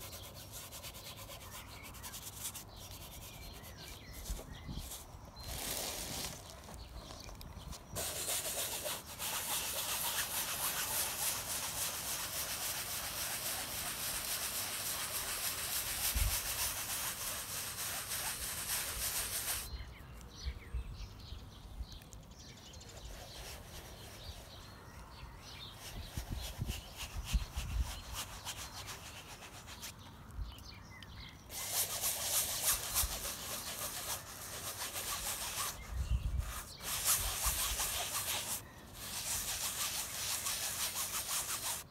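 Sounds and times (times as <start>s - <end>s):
paintbrush scrubbing on canvas: 0.0s - 19.7s, 22.8s - 24.8s, 25.5s - 29.9s, 31.5s - 41.9s.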